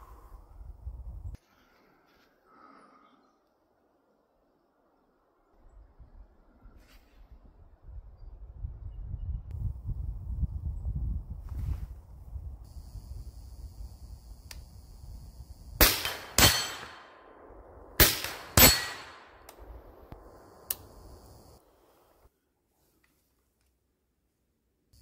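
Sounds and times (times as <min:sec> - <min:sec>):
suppressed rifle shots: 0:15.8 - 0:20.9.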